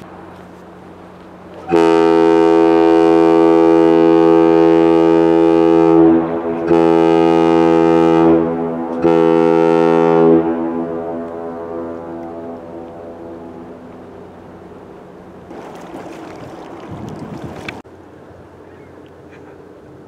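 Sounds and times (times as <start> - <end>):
ship horn blasts: 1.5 - 15.5.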